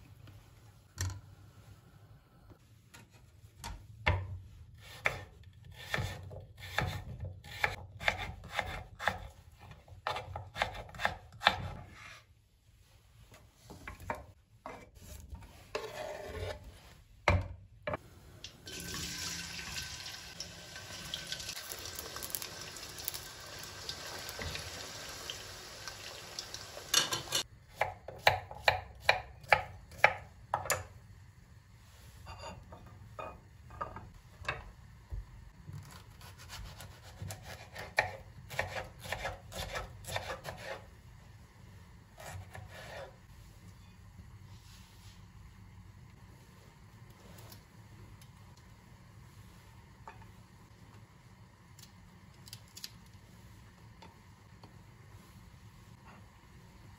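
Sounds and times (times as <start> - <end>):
knife chopping on wooden board: 36.4 - 40.8.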